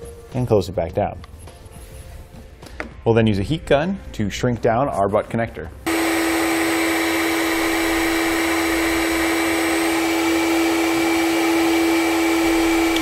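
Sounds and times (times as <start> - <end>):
heat gun whirring: 5.9 - 13.0.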